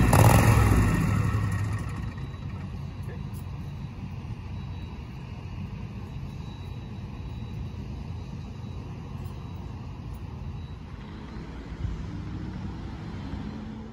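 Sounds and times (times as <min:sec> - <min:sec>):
engine running: 0:00.0 - 0:13.9.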